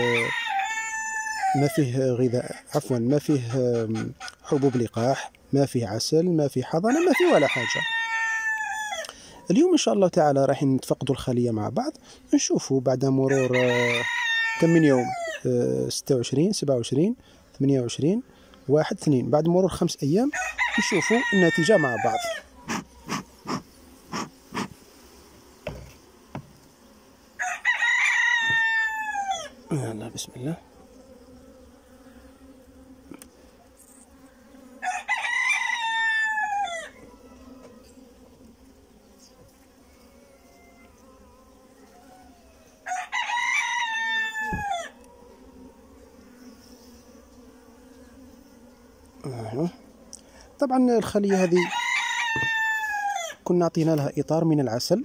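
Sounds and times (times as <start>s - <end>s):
rooster crowing: 0.0s - 2.6s, 3.5s - 5.0s, 6.7s - 9.4s, 13.2s - 15.5s, 20.2s - 23.6s, 27.3s - 30.5s, 34.6s - 37.9s, 39.7s - 45.9s, 51.1s - 53.6s
honeybees humming: 0.0s - 55.0s
bee smoker bellows puffing: 11.9s - 12.5s, 20.7s - 27.4s, 29.5s - 34.8s.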